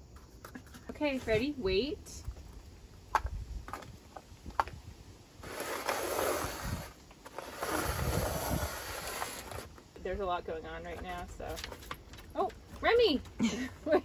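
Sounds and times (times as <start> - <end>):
cups scraping across boards: 5.4 - 9.8.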